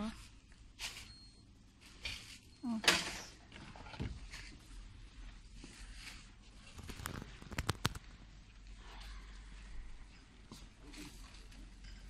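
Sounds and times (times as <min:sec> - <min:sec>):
sharp clicks: 0:06.9 - 0:08.0.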